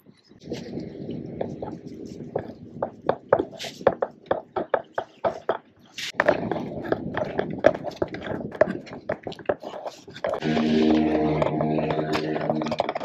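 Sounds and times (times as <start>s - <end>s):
rough scraping noise: 9.6s - 13.0s.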